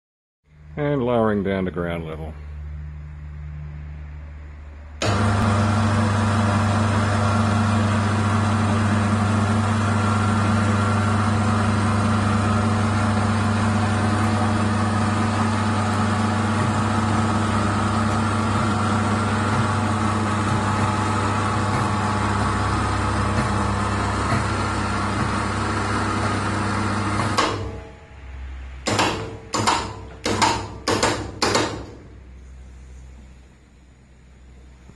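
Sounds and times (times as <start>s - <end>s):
electric hoist motor humming: 5.0s - 32.1s.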